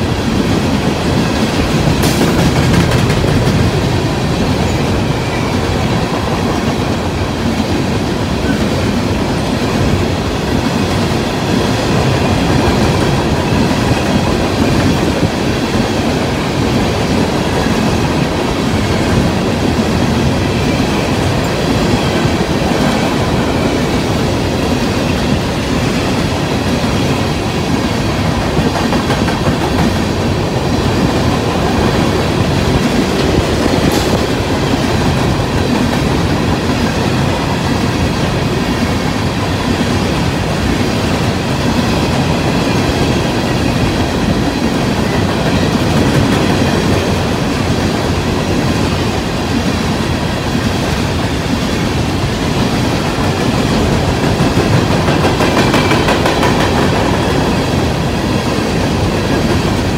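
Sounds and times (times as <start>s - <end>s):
train wheels clattering over rails: 0.0s - 59.9s.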